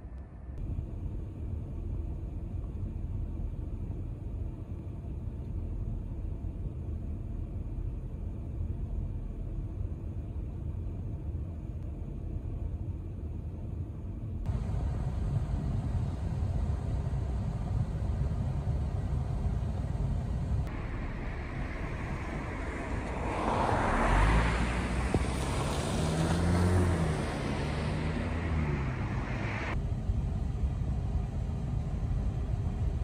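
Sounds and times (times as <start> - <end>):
steady low rumble: 0.0 - 33.0
car driving past: 20.6 - 29.8.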